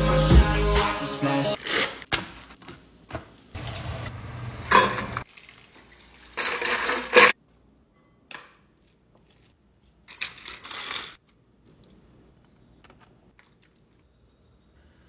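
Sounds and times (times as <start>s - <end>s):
utensils clattering in bowls: 4.7s - 5.5s, 6.1s - 7.4s, 10.1s - 11.2s.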